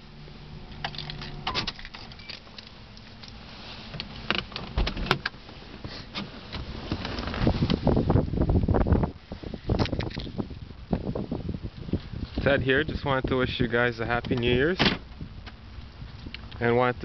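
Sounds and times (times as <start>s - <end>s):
handling clicks and rustles: 0.7s - 7.9s
wind noise on microphone: 6.5s - 17.0s.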